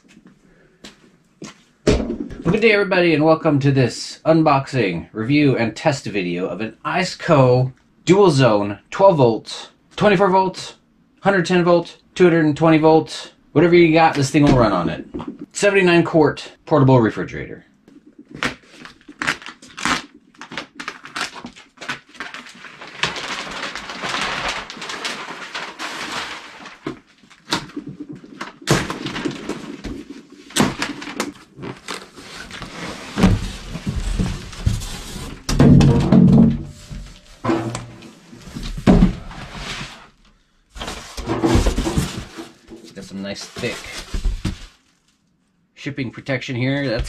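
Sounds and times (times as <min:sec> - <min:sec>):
plastic wrap crinkling and tearing: 0:18.3 - 0:27.8
cardboard and styrofoam scraping: 0:18.4 - 0:27.7, 0:28.7 - 0:35.5, 0:37.9 - 0:40.2, 0:40.8 - 0:44.8.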